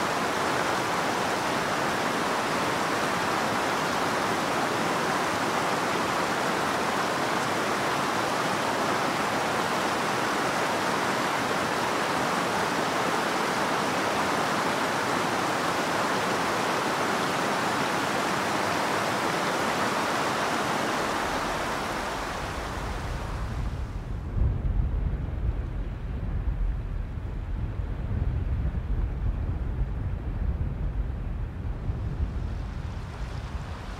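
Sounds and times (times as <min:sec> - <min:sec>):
stream rushing over stones: 0:00.0 - 0:23.9
low wind rumble: 0:16.2 - 0:33.9.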